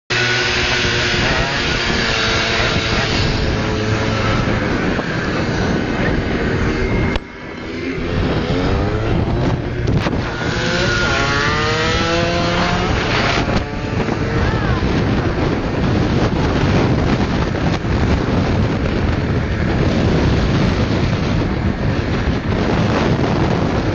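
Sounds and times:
dirt bike engines revving: 0.1s - 23.9s
wind noise on microphone: 0.1s - 23.9s.

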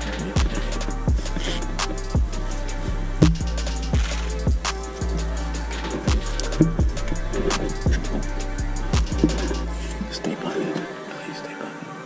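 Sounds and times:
music with steady beat: 0.0s - 10.4s.

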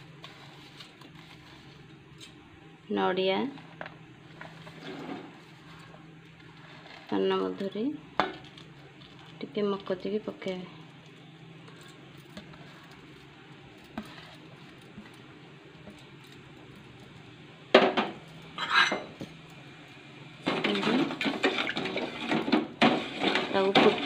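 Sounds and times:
low steady hum: 0.0s - 24.0s
metal ladle stirring in pot: 11.2s - 17.2s, 20.5s - 24.0s.

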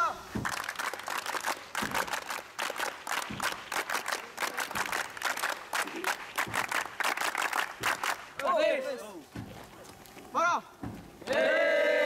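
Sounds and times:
people clapping: 0.4s - 9.0s, 11.2s - 12.0s.

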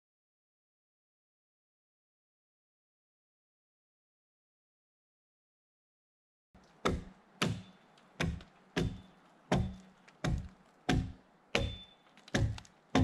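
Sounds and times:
axe chopping into log: 6.8s - 13.0s.

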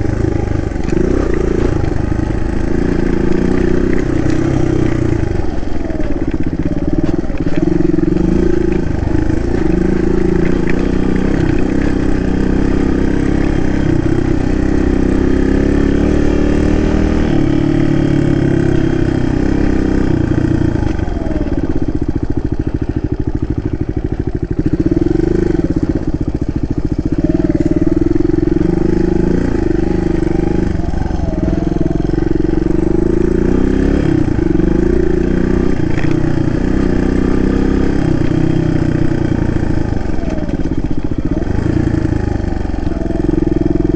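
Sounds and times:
motorcycle engine revving: 0.0s - 43.9s.

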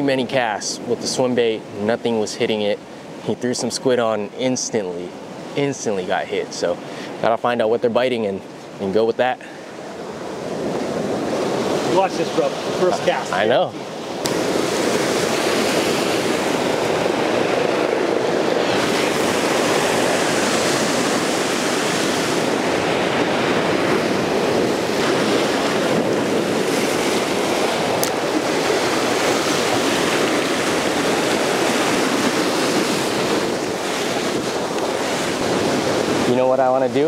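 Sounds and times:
ocean surf on rocky shore: 0.0s - 37.0s.

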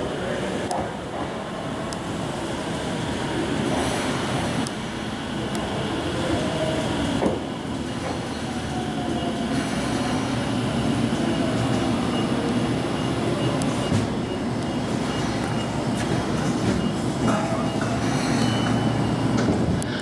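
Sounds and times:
subway train rumbling to a stop: 0.0s - 20.0s.

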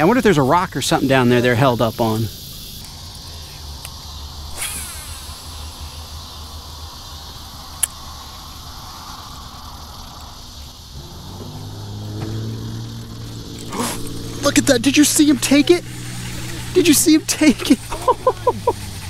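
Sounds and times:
insect chorus: 0.0s - 19.0s
low hum: 2.8s - 19.0s.

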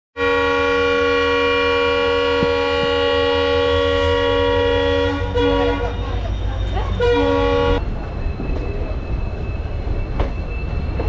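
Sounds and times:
train horn blast: 0.2s - 6.1s, 7.0s - 7.8s
train rumbling: 0.2s - 11.0s.

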